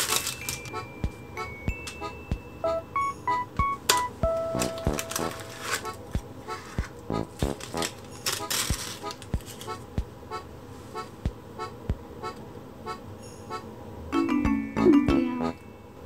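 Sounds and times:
light background music: 0.0s - 10.4s, 11.2s - 15.8s.

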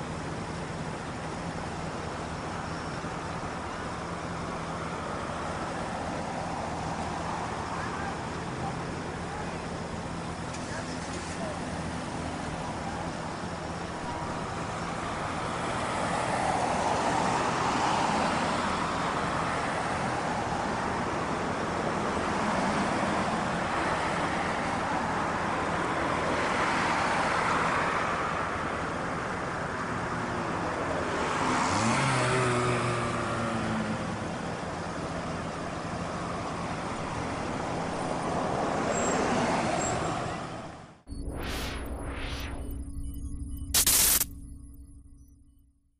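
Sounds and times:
cars passing: 0.0s - 44.8s
electronic logo sting: 41.1s - 45.7s.

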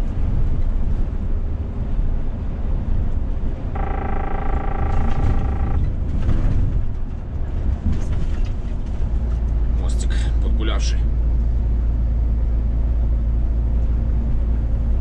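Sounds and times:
truck engine and road rumble: 0.0s - 15.0s
steady pitched tone: 3.8s - 5.9s.

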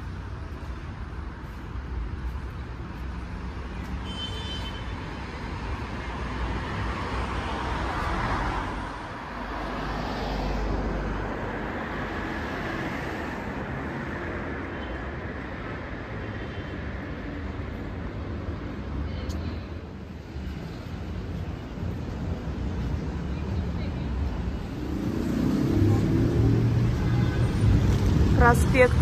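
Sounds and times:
car traffic noise: 0.0s - 29.0s
vehicles passing close by: 0.0s - 29.0s.

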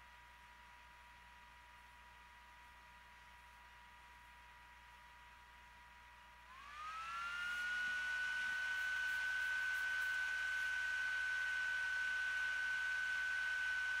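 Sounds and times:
high steady whine: 6.1s - 14.0s.

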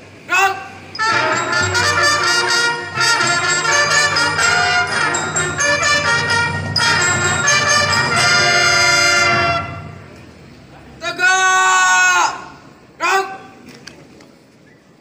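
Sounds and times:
trumpets playing fanfare: 1.0s - 10.4s.

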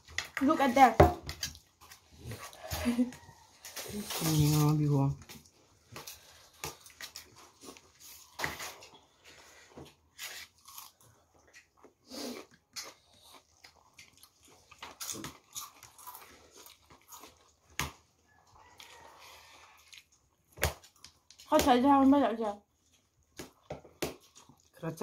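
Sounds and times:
food crunching: 1.3s - 21.5s, 22.8s - 24.8s
chewing and lip smacking: 10.5s - 21.5s, 22.9s - 24.8s.

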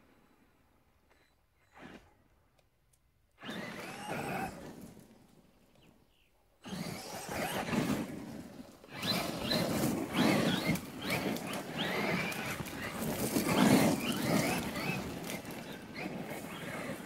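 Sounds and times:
electric motor whining: 3.4s - 4.9s, 6.6s - 8.1s, 8.9s - 17.0s
tyres on gravel: 3.4s - 5.3s, 6.7s - 17.0s.

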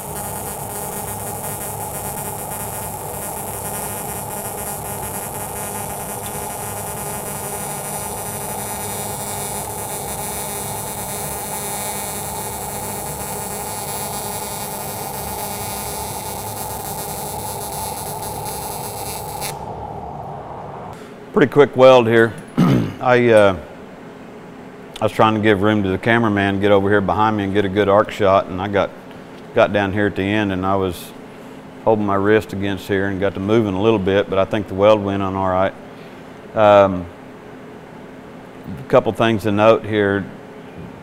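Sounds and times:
welding arc buzzing: 0.0s - 19.7s.

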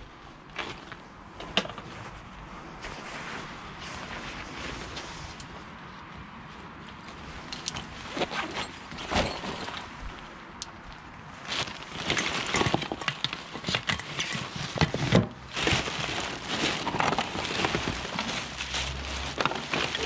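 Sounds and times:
plastic bags rustling: 11.3s - 20.0s.

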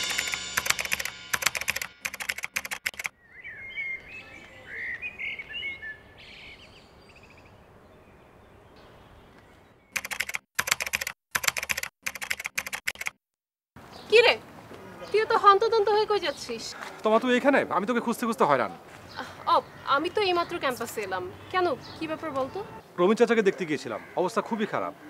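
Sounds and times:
keyboard typing clicks: 0.6s - 3.1s, 10.0s - 13.2s
birds chirping: 3.0s - 10.3s, 18.0s - 23.0s.

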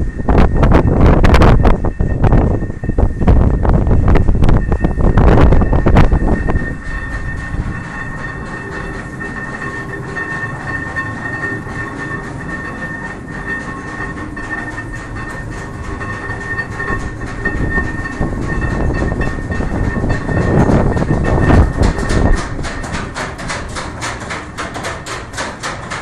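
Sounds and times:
mill machinery rumble: 0.0s - 26.0s
rapid irregular clatter: 0.0s - 26.0s
steady high whine: 0.0s - 26.0s.

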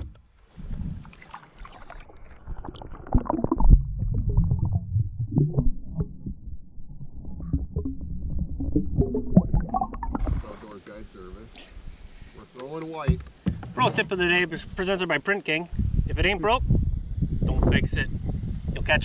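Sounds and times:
water movement: 0.0s - 10.8s
low rumble: 2.4s - 10.6s.

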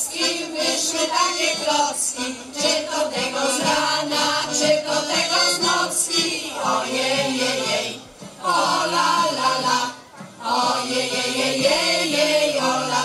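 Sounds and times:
button accordion: 0.0s - 13.0s
women's choir singing folk song: 0.0s - 13.0s.

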